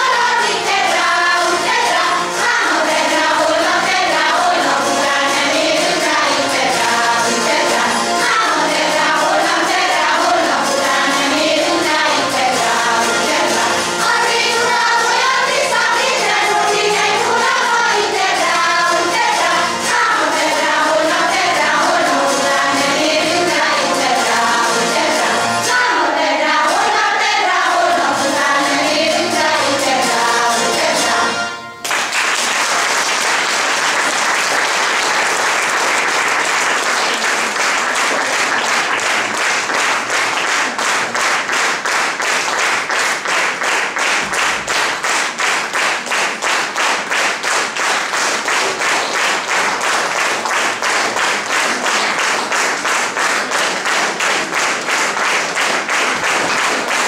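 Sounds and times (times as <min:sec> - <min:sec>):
women's choir singing: 0:00.0 - 0:31.6
rhythmic clapping in unison: 0:00.0 - 0:57.0
audience applause: 0:31.8 - 0:57.0.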